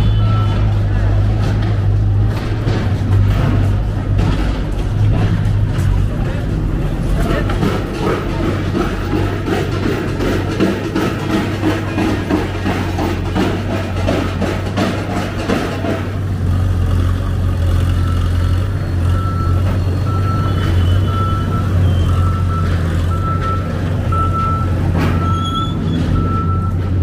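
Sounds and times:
diesel engine humming: 0.0s - 27.0s
reversing alarm beeps: 0.1s - 0.6s, 17.9s - 26.9s.

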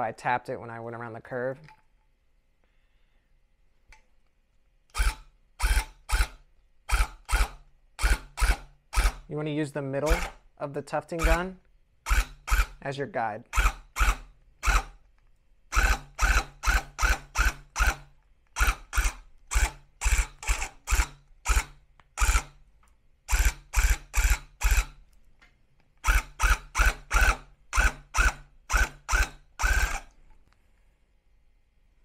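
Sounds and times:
tufting gun buzzing bursts: 12.0s - 12.8s, 13.5s - 15.0s, 15.7s - 22.6s, 26.0s - 30.1s.

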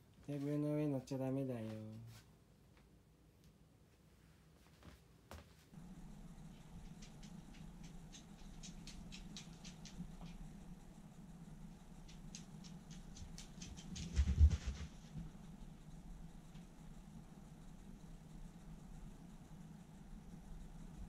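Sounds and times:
steady low hum: 5.6s - 21.0s
dog claws clicking on wooden floor: 7.0s - 10.4s.

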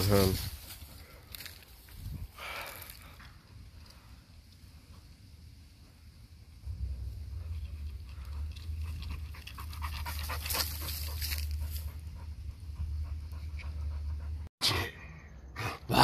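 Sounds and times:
low rumble: 3.4s - 14.5s
dog panting: 7.3s - 14.5s.

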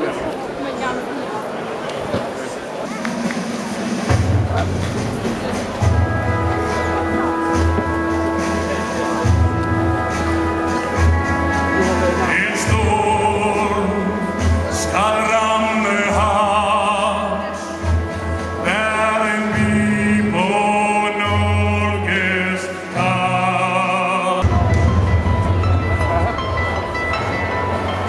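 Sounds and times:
orchestral accompaniment: 3.3s - 28.0s
man singing operatically: 11.6s - 24.8s.

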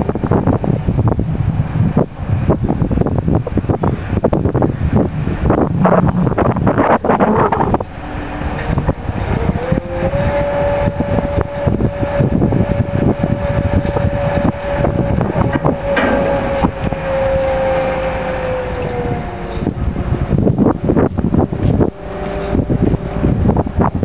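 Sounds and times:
crane drive whining: 0.0s - 24.0s
wind buffeting microphone: 0.0s - 24.0s.

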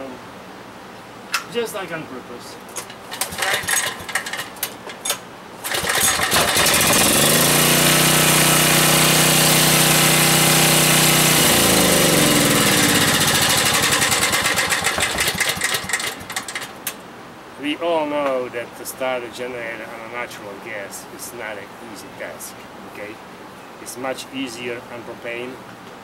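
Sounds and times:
generator engine running: 2.8s - 4.7s, 5.6s - 16.9s.

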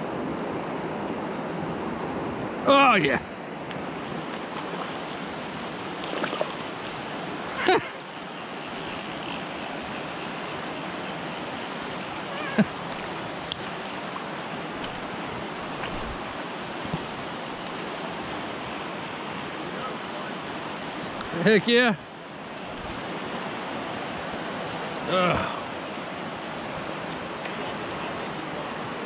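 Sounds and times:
creek rushing: 0.6s - 29.0s.

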